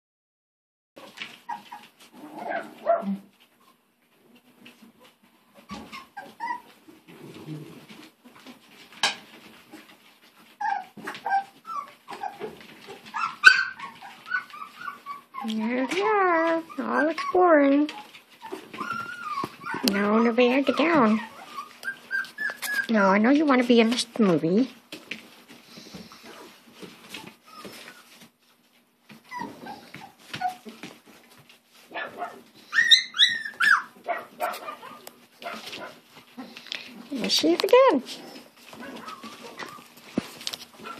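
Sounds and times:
dog whimpering: 1.0 - 3.3, 5.0 - 8.6, 10.5 - 23.3, 26.1 - 28.2, 29.2 - 30.8, 32.1 - 37.2, 37.9 - 40.0
dog yelping: 1.0 - 3.3, 5.6 - 6.8, 10.6 - 23.0, 29.3 - 30.8, 31.9 - 36.5, 38.7 - 40.0
puppies whining: 1.0 - 24.4, 25.5 - 40.9.

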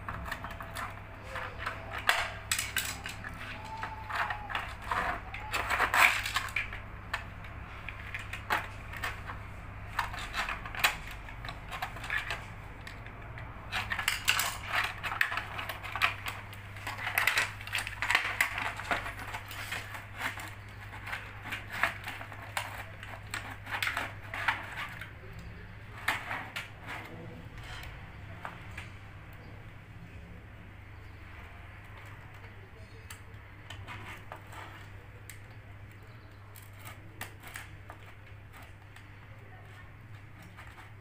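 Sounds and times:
plastic clips clicking and snapping: 0.0 - 27.1.

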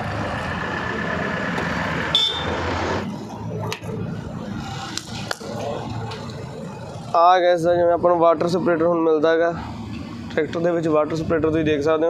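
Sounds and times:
tractor diesel engine idling: 0.0 - 2.4.

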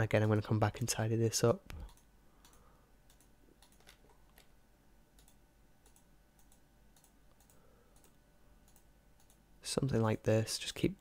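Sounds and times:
computer mouse clicks: 1.7 - 4.5, 5.2 - 9.4.

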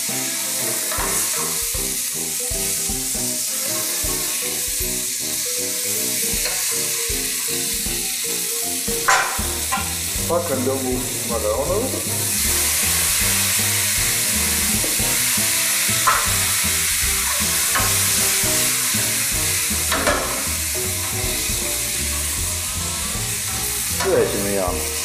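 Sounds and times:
tomatoes sizzling in oil: 0.0 - 25.0
utensil clicking against pan: 15.7 - 16.7, 17.4 - 19.1.

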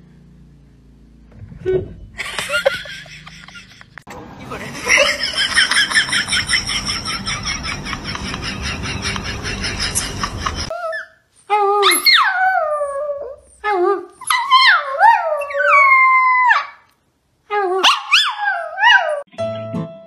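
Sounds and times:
regular ticking: 5.4 - 10.7.

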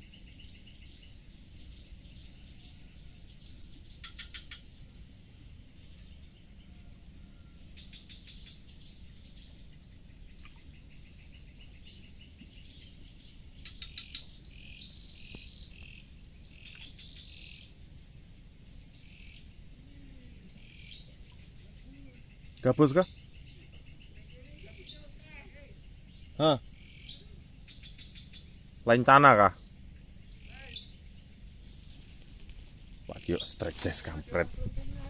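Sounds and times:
high-pitched insect drone: 10.5 - 35.0.

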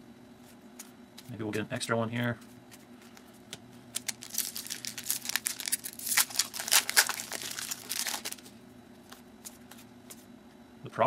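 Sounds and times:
foil wrapper crinkling: 3.9 - 9.6.

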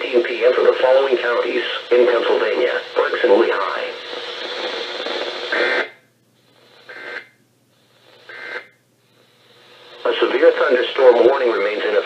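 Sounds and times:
radio receiver hissing: 0.0 - 12.0.

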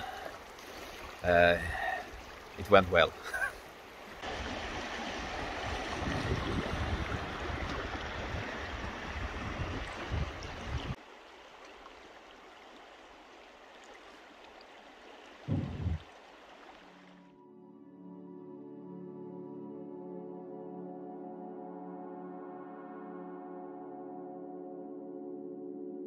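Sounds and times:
low water rumbles: 0.0 - 17.2
river water rushing: 0.0 - 17.2.

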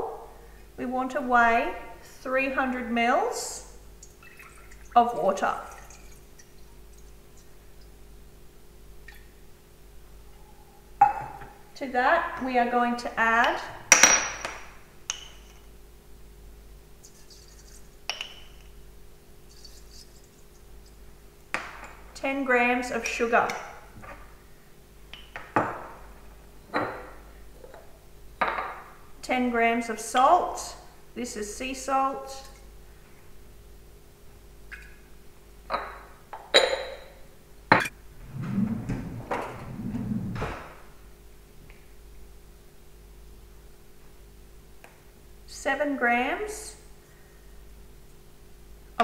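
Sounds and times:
spoon scraping sugar: 19.5 - 21.0.

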